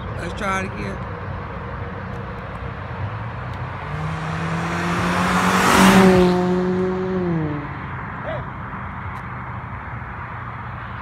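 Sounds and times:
vehicle speeding past: 3.0s - 8.6s.

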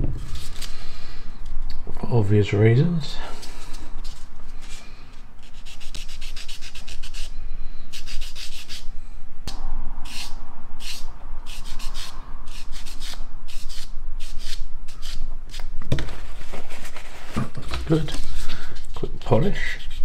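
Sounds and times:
sanding sponge scrubbing: 5.5s - 7.3s, 19.5s - 20.0s.

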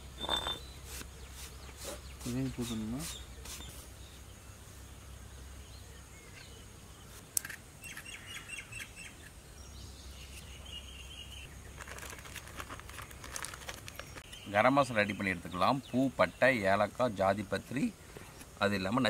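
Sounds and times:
birds chirping: 0.0s - 12.0s, 12.7s - 19.0s
whistled bird note: 0.2s - 0.7s.

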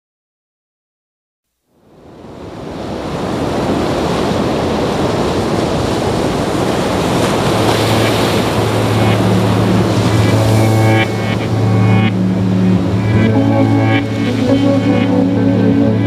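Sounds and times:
sea surf rushing: 1.9s - 16.0s
low steady hum: 7.6s - 16.0s.

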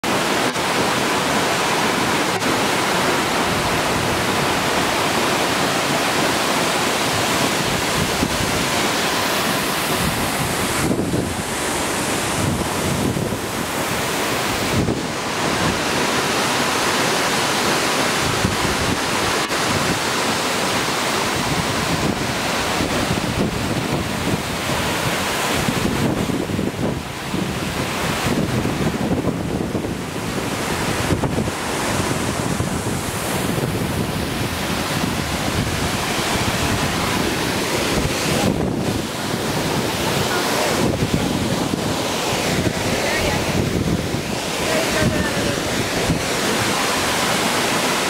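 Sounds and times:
waterfall roaring: 0.0s - 48.0s
wind noise on microphone: 0.0s - 48.0s.

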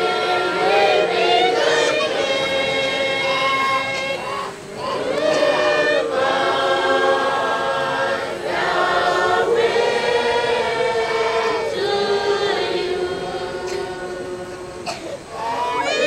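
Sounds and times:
group of voices singing: 0.0s - 16.0s.

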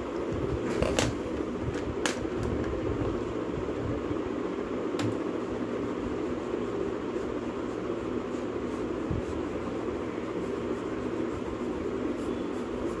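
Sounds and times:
mechanical hum and rushing: 0.0s - 13.0s
brush swishing on paper: 5.4s - 13.0s.

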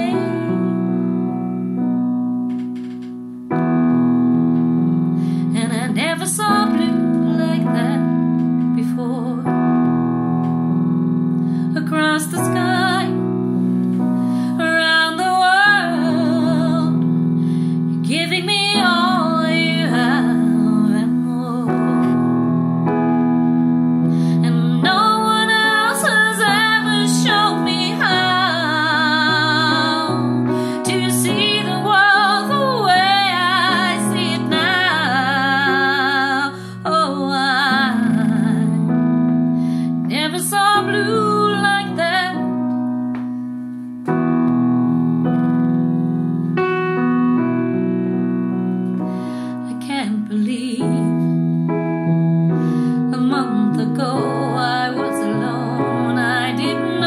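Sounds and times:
woman singing: 0.0s - 1.0s, 5.4s - 9.9s, 11.7s - 13.6s, 14.4s - 17.3s, 17.9s - 22.2s, 24.2s - 42.9s, 49.6s - 51.5s, 52.9s - 57.0s
piano chords: 0.0s - 57.0s.

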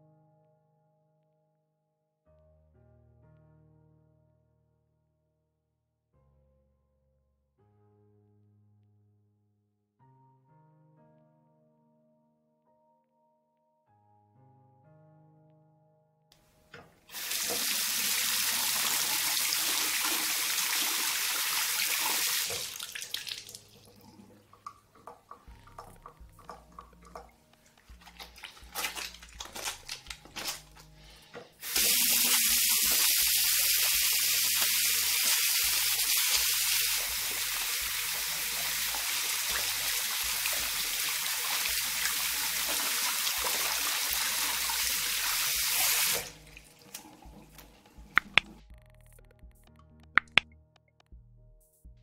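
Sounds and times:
tap water running into basin: 16.8s - 30.9s, 31.6s - 48.6s
soapy hands rubbing: 25.8s - 36.6s.

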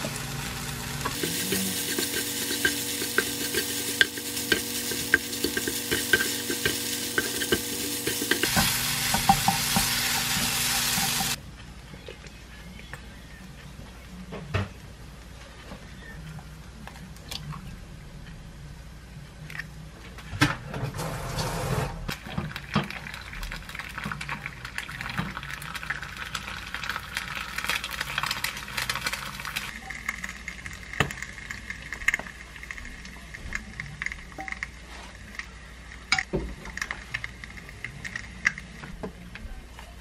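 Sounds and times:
egg sizzling in a pan: 0.0s - 11.4s, 22.1s - 35.0s.

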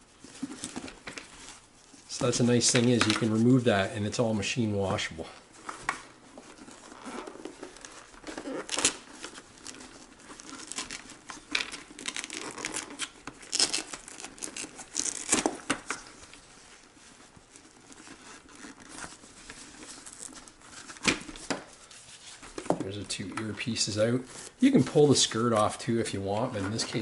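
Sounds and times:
fabric and padding rustling: 0.0s - 27.0s
velcro ripping apart: 6.7s - 16.4s.

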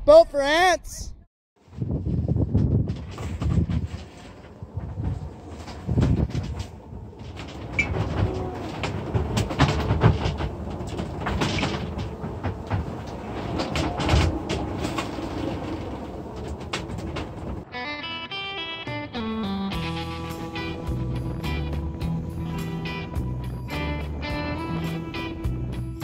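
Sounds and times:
knocks and rattles: 2.5s - 17.7s.

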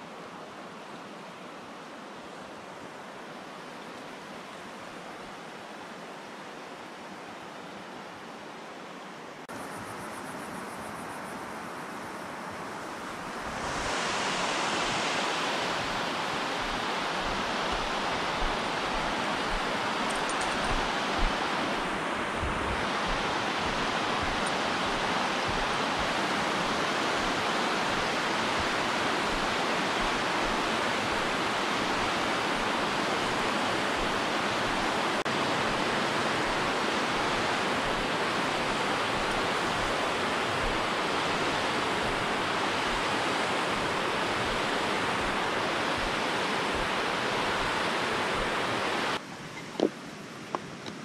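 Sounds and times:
water rushing down spillway: 13.2s - 49.2s.

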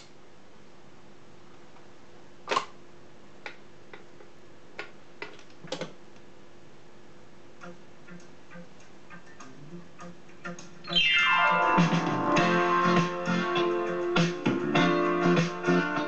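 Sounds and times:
record clicks and pops: 2.5s - 2.8s, 3.4s - 6.3s.

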